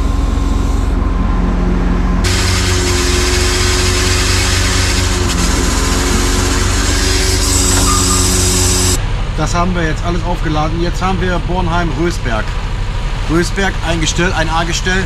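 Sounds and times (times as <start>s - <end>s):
truck engine drone: 0.0s - 15.0s
loud hydraulic hiss: 2.2s - 9.0s.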